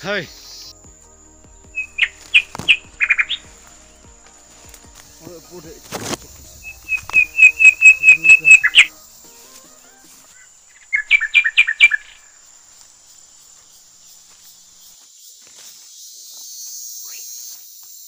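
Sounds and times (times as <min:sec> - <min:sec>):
faint insect drone: 0:00.0 - 0:18.0
bird calling sharp high notes: 0:01.7 - 0:12.4.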